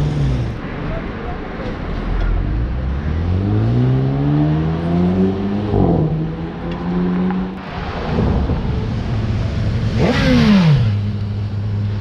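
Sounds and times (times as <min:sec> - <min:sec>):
sports car engine accelerating: 0:02.6 - 0:07.6.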